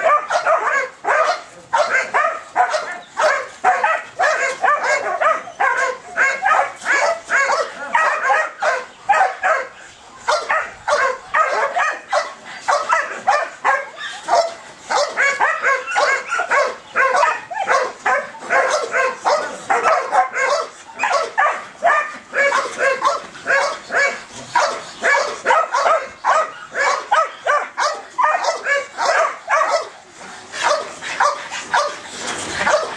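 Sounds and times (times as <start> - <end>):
dog yipping rapidly: 10.3 - 29.9.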